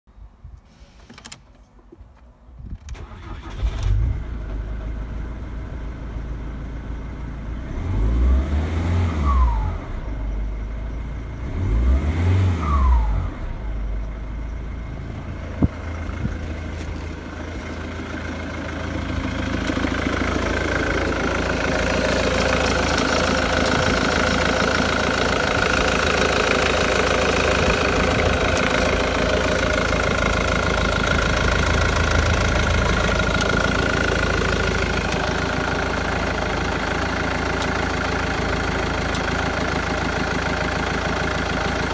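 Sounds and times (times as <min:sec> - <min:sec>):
diesel engine starting and idling: 0:02.8 - 0:41.9
engine revving: 0:07.6 - 0:10.1, 0:11.4 - 0:13.7, 0:17.9 - 0:39.2.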